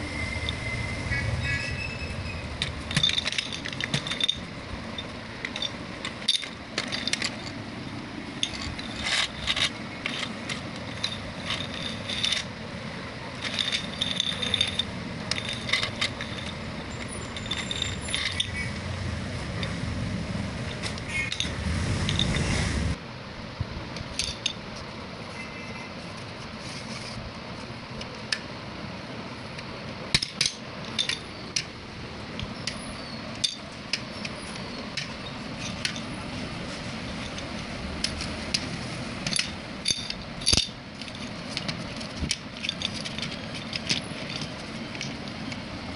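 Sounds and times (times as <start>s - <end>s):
low hum: 0.0s - 24.5s
plastic dominoes clattering: 2.8s - 4.5s, 13.4s - 18.6s.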